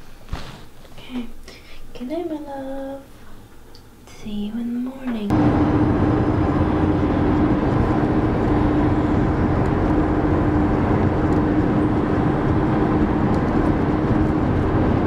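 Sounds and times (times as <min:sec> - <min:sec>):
constant low hum: 0:00.8 - 0:15.0
engine and road noise in car: 0:05.3 - 0:15.0.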